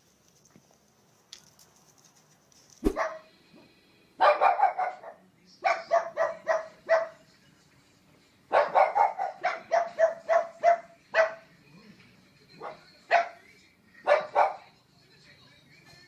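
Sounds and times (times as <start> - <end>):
dog barking: 2.8 - 3.3, 4.2 - 7.2, 8.5 - 11.5, 12.6 - 13.4, 14.0 - 14.7.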